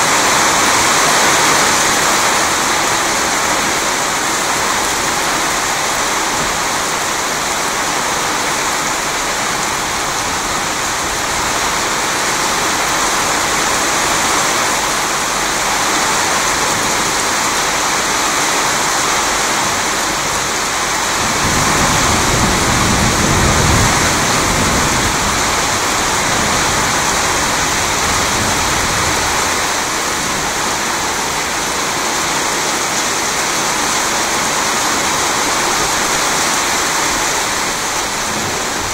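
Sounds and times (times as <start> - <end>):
steady rain: 0.0 - 38.9
thunder rumbling: 20.4 - 31.8.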